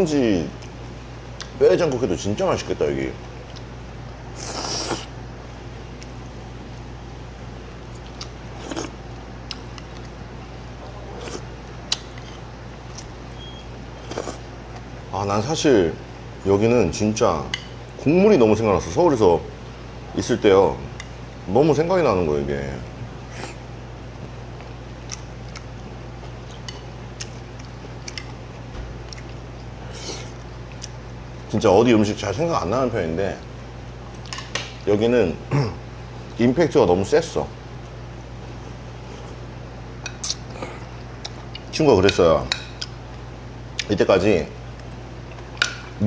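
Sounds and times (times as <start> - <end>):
steady low hum: 0.0 - 46.0
person chewing and slurping: 4.4 - 5.1, 7.9 - 10.1, 14.0 - 14.9.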